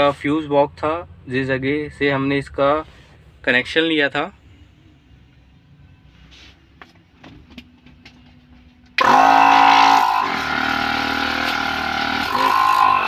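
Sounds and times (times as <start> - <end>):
air compressor motor running: 9.0 - 13.0.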